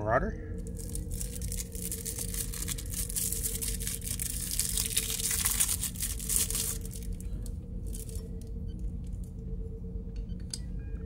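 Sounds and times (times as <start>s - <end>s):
steady low hum: 0.0s - 11.0s
plastic packaging crinkling: 0.6s - 8.4s.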